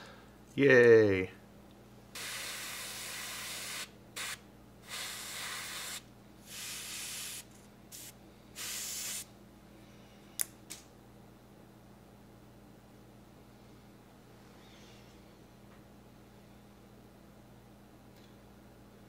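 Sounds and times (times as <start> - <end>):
airbrush hissing: 2.2 - 9.3.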